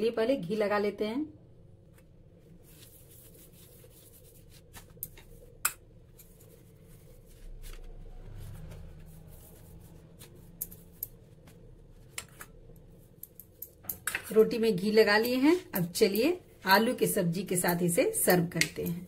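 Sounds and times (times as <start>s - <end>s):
low rubbing of flatbread: 2.3s - 12.1s.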